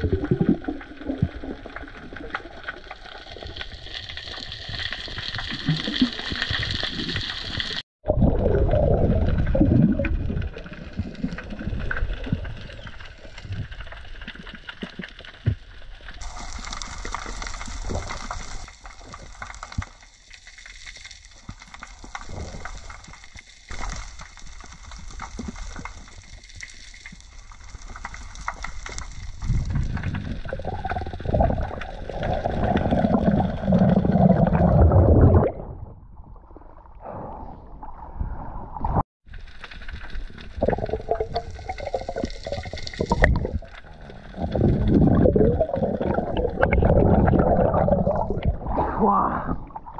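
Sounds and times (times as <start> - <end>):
muffled underwater rush: 5.5 - 14.2, 29.0 - 39.0, 40.2 - 49.9.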